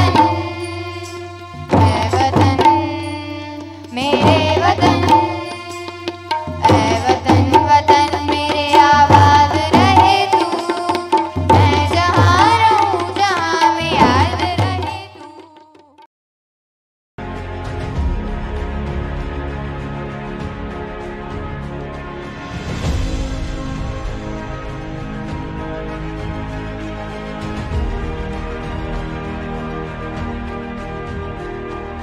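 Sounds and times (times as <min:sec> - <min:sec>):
group singing: 0:00.0 - 0:15.2
tabla and hand drums: 0:00.0 - 0:16.1.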